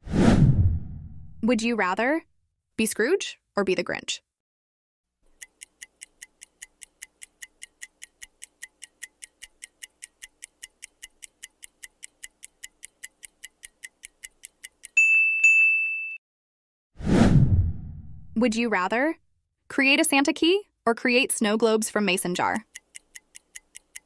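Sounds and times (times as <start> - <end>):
clock ticking: 5.2 - 15.0, 21.4 - 24.0.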